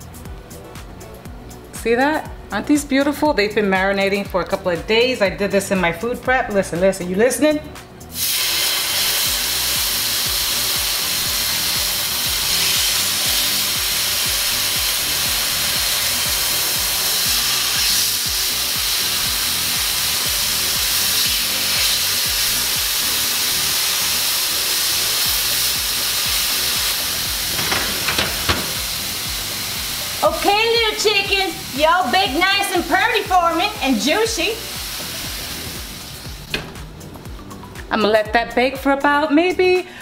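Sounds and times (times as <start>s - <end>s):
meat sizzling in pan: 8.1s - 36.5s.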